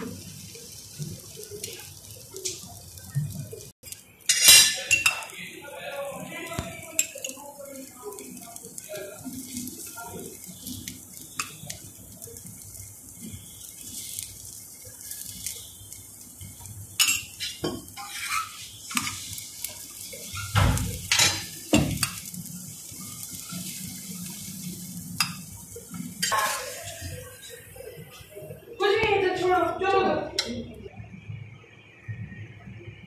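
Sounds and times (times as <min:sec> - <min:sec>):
flatbread frying in oil: 0:00.0 - 0:33.0
metal spoon scraping griddle: 0:17.0 - 0:22.4, 0:26.2 - 0:27.0.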